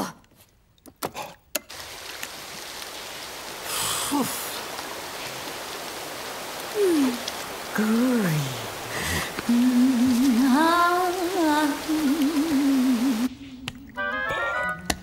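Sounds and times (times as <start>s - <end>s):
shower spray hissing: 1.7s - 13.6s.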